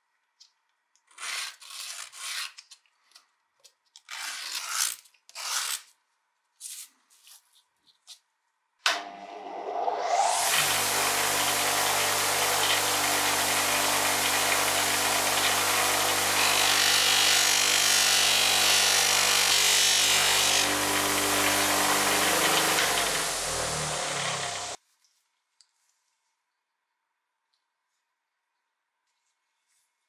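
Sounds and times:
bench buffer motor hum: 0:09.0 - 0:24.8.

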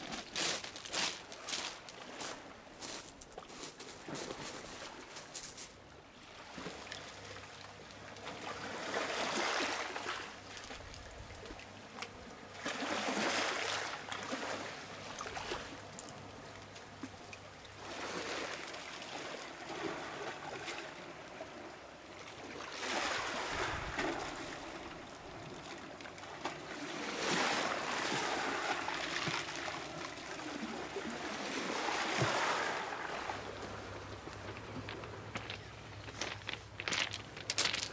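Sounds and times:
waves washing on pebble shore: 0:22.7 - 0:24.8, 0:26.6 - 0:37.9.

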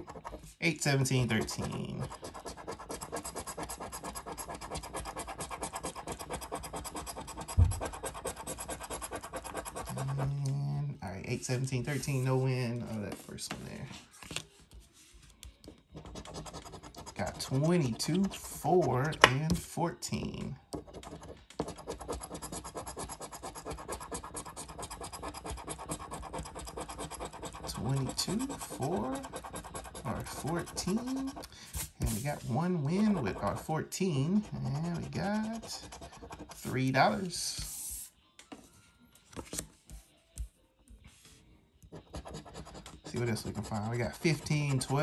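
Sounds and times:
coin scratching lottery ticket: 0:00.0 - 0:00.4, 0:01.1 - 0:10.4, 0:15.9 - 0:19.3, 0:20.8 - 0:37.3, 0:42.0 - 0:45.0.

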